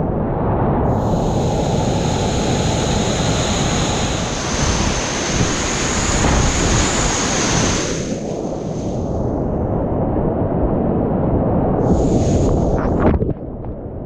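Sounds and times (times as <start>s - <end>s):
river rapid rushing: 1.0s - 8.5s.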